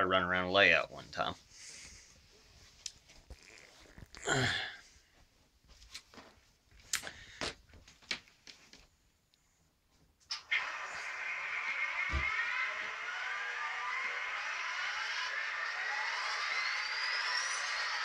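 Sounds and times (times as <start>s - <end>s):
breathy burst: 4.2s - 4.9s.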